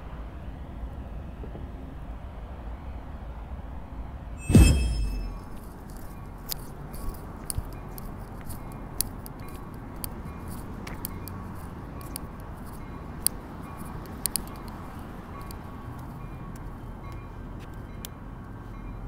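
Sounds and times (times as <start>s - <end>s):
city background noise: 0.0s - 19.0s
faint high tone: 4.4s - 5.5s.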